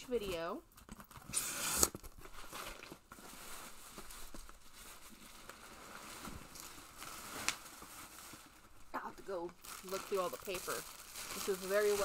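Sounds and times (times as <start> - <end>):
packing paper rustling: 0.2 - 12.0.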